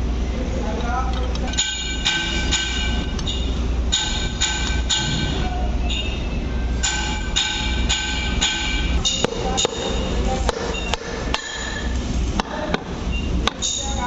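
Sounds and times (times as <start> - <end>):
low hum: 0.0 - 13.3
hammer striking metal: 1.5 - 6.2, 6.8 - 12.9
metal housing ringing: 1.5 - 12.8.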